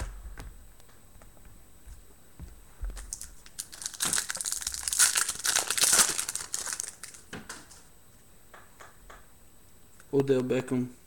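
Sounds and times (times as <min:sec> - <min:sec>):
foil wrapper tearing and crumpling: 0:03.0 - 0:07.3.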